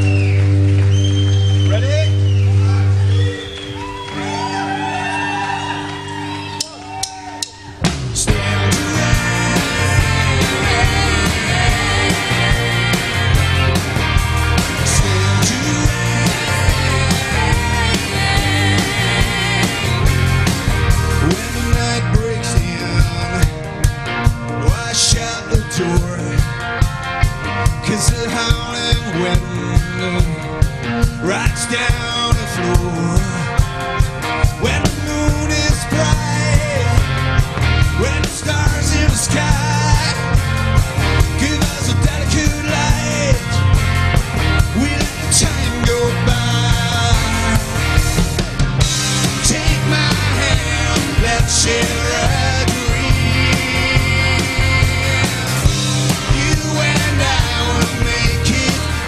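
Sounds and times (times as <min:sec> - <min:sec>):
electric bass: 0:00.0 - 0:59.0
electric guitar: 0:00.0 - 0:59.0
live rock band playing: 0:00.0 - 0:59.0
drum kit beat: 0:01.8 - 0:59.0
person singing: 0:04.2 - 0:13.8, 0:14.7 - 0:20.3, 0:49.2 - 0:59.0
woman singing: 0:15.4 - 0:20.1.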